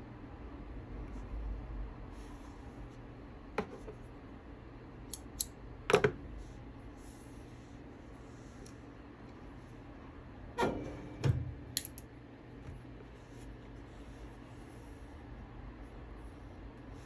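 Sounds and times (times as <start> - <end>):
rustle of thread and cloth: 12.5 - 17.0.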